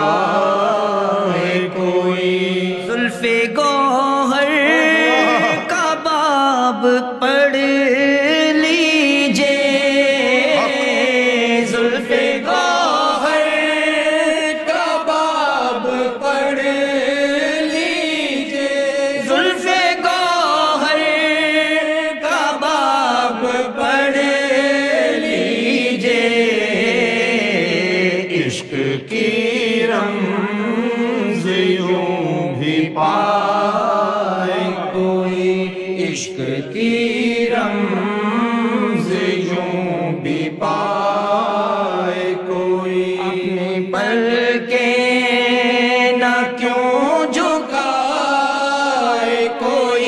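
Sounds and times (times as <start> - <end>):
man singing devotional verse: 0.0 - 50.0.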